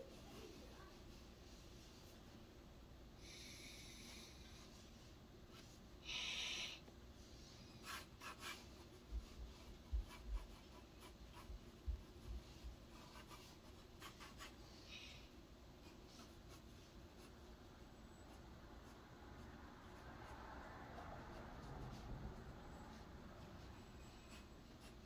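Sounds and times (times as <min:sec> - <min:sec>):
drawing tool scratching surface: 0:07.7 - 0:11.5, 0:12.2 - 0:14.6.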